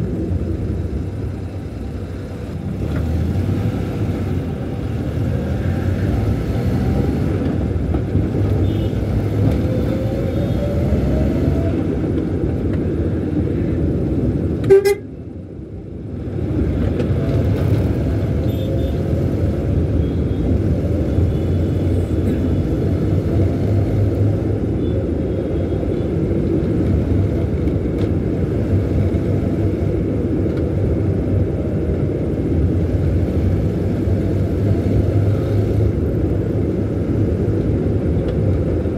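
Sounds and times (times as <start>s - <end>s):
car engine and road noise: 0.0s - 38.9s
car horn beep: 14.6s - 15.1s.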